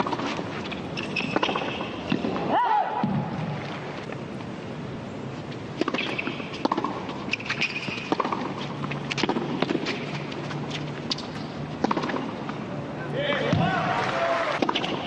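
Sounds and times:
racket striking tennis ball: 0:00.0 - 0:03.4, 0:05.7 - 0:10.4, 0:11.0 - 0:12.6, 0:14.5 - 0:15.0
shoe squeaks on court: 0:00.6 - 0:02.2, 0:05.9 - 0:09.0.

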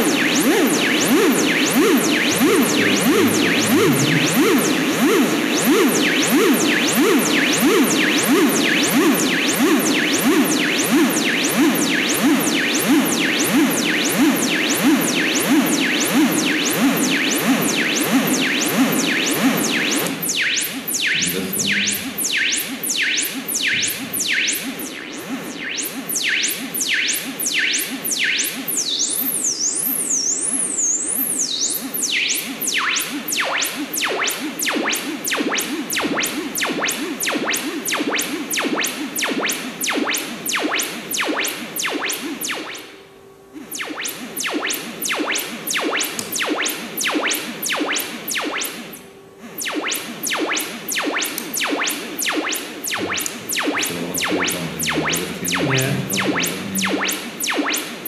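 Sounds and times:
synthesizer zapping notes: 0:01.3 - 0:06.7, 0:21.0 - 0:22.4, 0:52.3 - 0:58.0.

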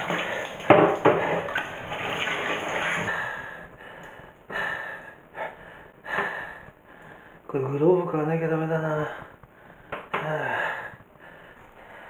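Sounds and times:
tap water running over hands: 0:00.0 - 0:03.3
water splashes: 0:00.0 - 0:03.3.

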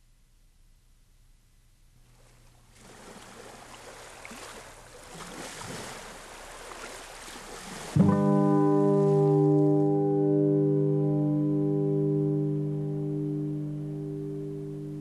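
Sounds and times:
ocean surf washing: 0:02.7 - 0:09.5.

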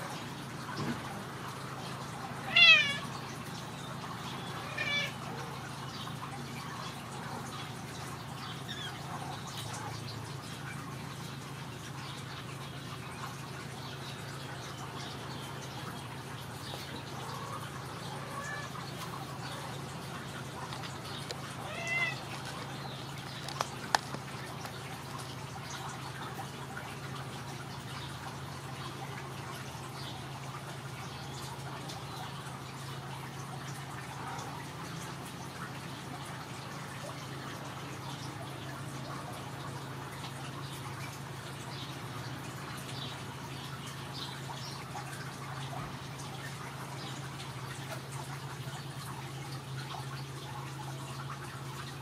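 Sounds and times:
cat meowing: 0:02.4 - 0:03.1, 0:04.5 - 0:05.3, 0:18.1 - 0:18.8, 0:21.6 - 0:22.3.

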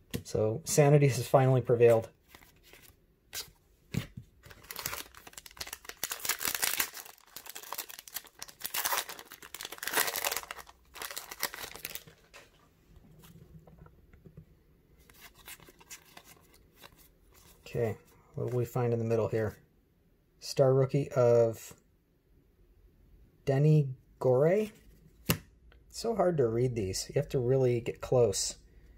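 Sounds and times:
cards rustling and clicking: 0:01.8 - 0:12.6, 0:15.0 - 0:17.7
foil wrapper crinkling and tearing: 0:04.5 - 0:12.2.

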